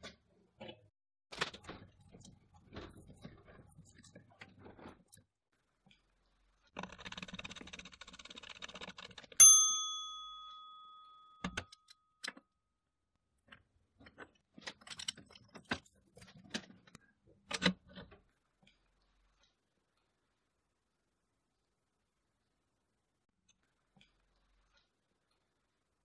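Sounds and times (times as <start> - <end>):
sharp metallic ring: 9.4 - 12.0.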